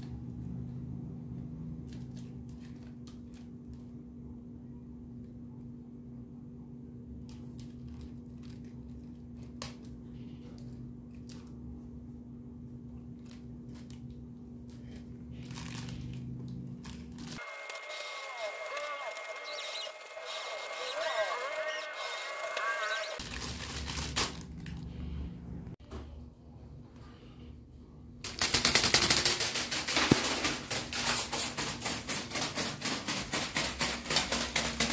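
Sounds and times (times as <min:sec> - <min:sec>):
steady low hum: 0:00.0 - 0:34.9
clicks and rustles of handling toy: 0:01.9 - 0:03.9, 0:28.3 - 0:34.9
toy wings flapping and clattering: 0:16.8 - 0:21.4, 0:28.2 - 0:34.9.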